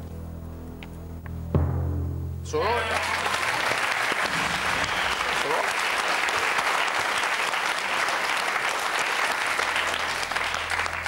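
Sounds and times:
studio audience applauding: 2.6 - 11.0.

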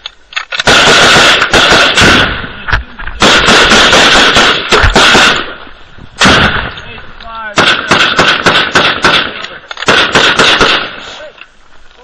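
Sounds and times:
machine gun firing: 0.6 - 2.5, 3.2 - 5.6, 6.2 - 6.7, 7.5 - 11.0.

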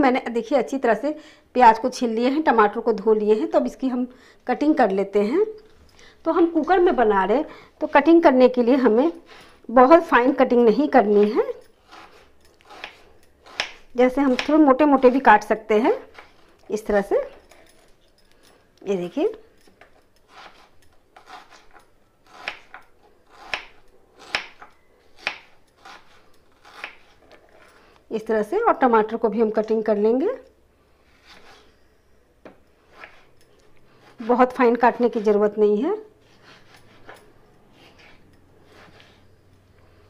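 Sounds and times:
knife slicing onion on board: 11.1 - 15.4, 20.3 - 27.3, 31.1 - 31.7, 32.9 - 33.3, 36.3 - 37.2, 37.8 - 39.2.

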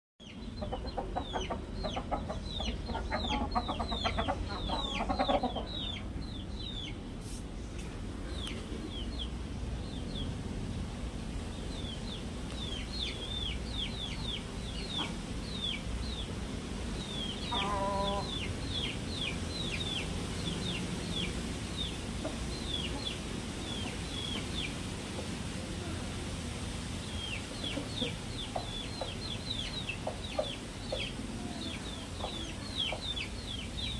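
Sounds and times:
chickens clucking: 0.2 - 7.1, 11.8 - 26.2, 27.0 - 33.9.

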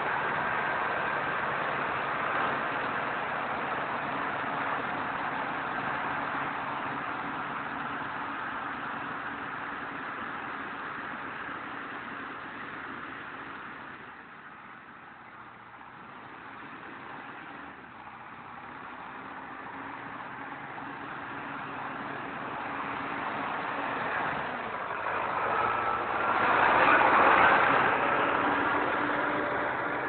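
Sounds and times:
diesel engine approaching: 0.0 - 30.0.

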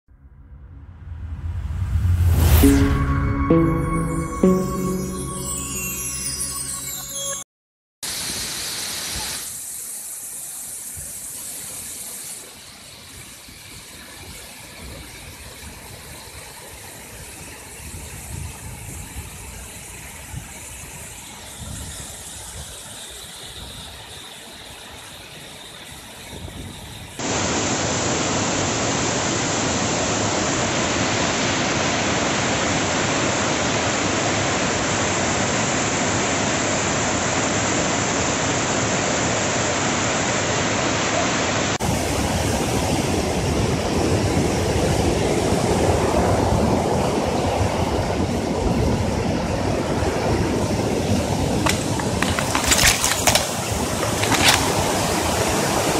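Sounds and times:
waterfall rushing: 27.2 - 42.2.

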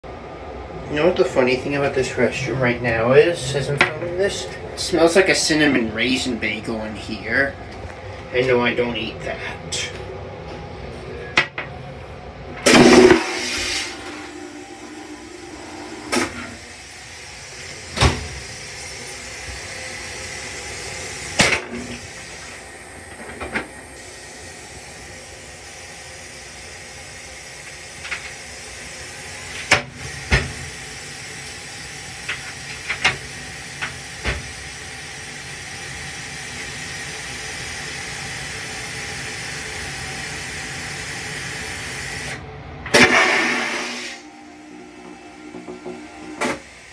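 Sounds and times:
railcar hiss and rumble: 0.1 - 46.9
loud brief rush of noise: 42.9 - 44.2.

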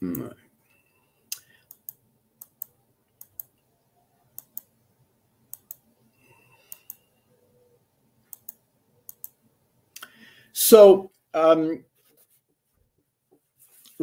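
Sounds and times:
computer mouse clicking: 1.4 - 3.6, 4.3 - 4.7, 5.5 - 5.9, 6.5 - 7.1, 8.2 - 9.4.

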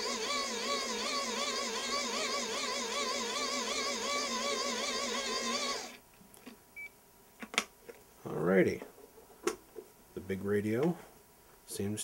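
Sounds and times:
hand-crank dynamo whine: 0.0 - 6.0.

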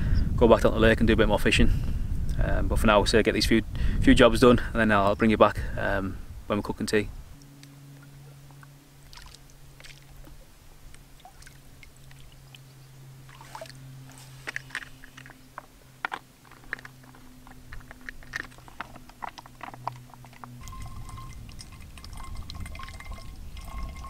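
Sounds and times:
faint low hum: 0.0 - 24.0
water splashing and dribbling: 9.0 - 15.7, 17.8 - 24.0.

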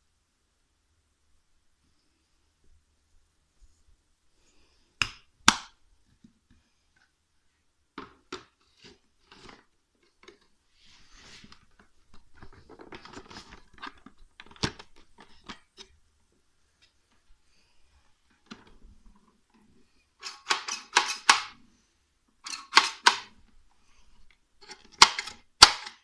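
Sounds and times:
plastic parts scraping: 8.2 - 16.0, 22.4 - 23.4, 24.1 - 26.0.

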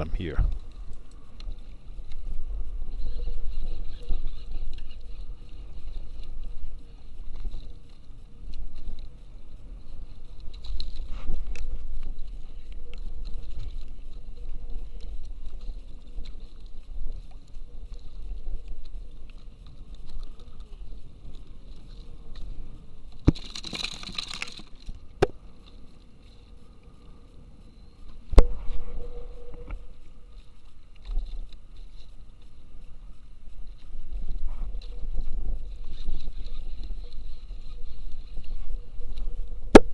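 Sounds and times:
wind rumbling on microphone: 0.0 - 23.6, 24.2 - 39.9
water lapping at kayak: 0.5 - 39.8
gear knocks and clicks: 23.2 - 25.0.

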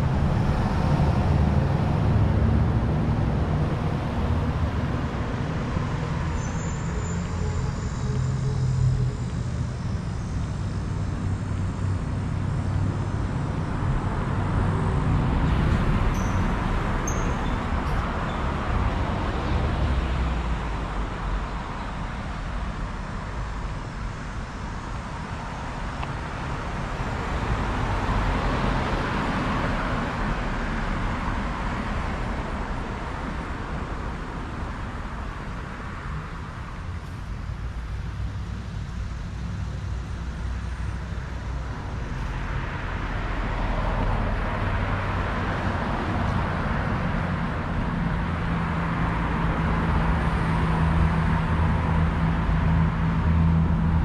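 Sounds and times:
steady low rumble: 0.0 - 5.7
cars passing: 0.0 - 54.0.

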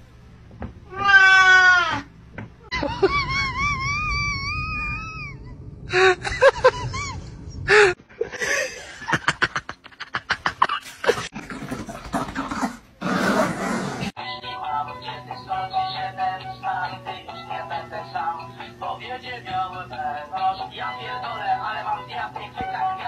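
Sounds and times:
cat meowing: 0.9 - 2.1
person laughing: 2.6 - 11.3.

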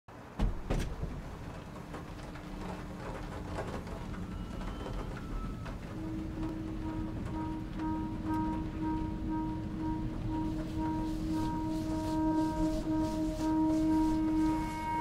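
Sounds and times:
rain falling: 0.2 - 15.0
faint held tones: 4.3 - 15.0.

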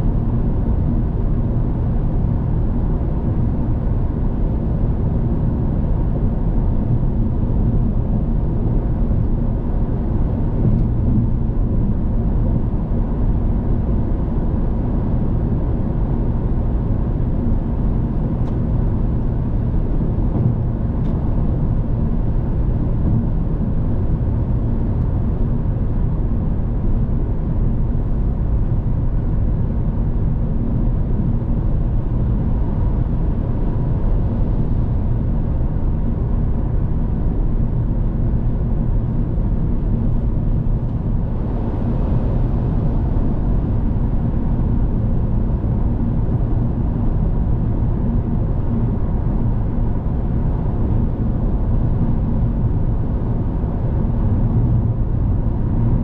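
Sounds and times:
car road noise: 16.8 - 27.7, 39.9 - 46.2.

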